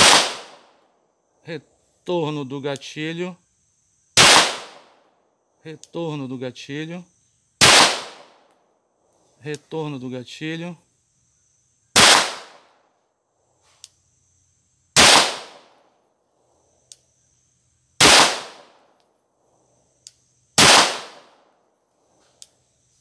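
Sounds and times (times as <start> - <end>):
pistol shots: 0.0 - 0.8, 4.2 - 5.0, 7.6 - 8.4, 12.0 - 12.7, 15.0 - 15.8, 18.0 - 18.8, 20.6 - 21.4.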